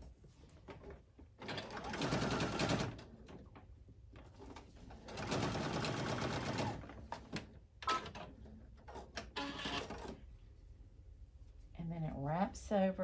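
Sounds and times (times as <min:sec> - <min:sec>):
sewing machine stitching: 0:01.4 - 0:03.0, 0:05.0 - 0:06.9, 0:09.2 - 0:10.2.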